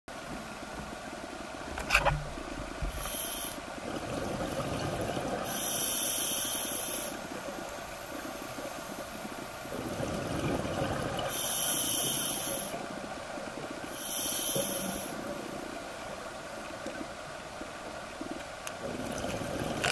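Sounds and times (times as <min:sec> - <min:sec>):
diver breathing through regulator: 0:02.9 - 0:03.6, 0:05.5 - 0:07.2, 0:11.3 - 0:12.8, 0:13.9 - 0:15.2.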